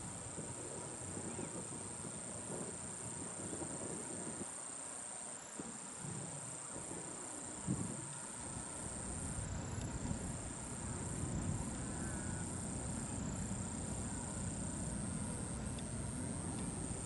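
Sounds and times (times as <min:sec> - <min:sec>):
wind rumble on microphone: 0:00.0 - 0:04.7, 0:05.6 - 0:17.0
insects trilling: 0:00.0 - 0:17.0.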